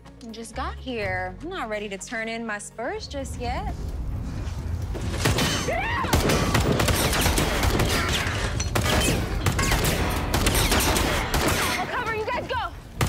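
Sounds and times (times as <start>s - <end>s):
bullets striking metal: 5.2s - 12.2s.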